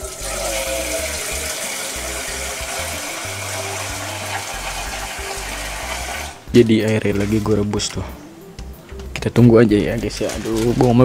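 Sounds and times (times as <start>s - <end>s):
tap water running into a pot: 0.0s - 6.4s.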